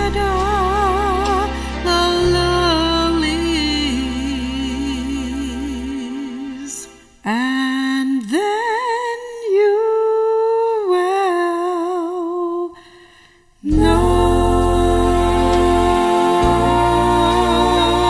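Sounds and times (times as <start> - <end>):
woman humming gospel melody: 13.6 - 18.0
choir chord with low backing: 13.7 - 18.0.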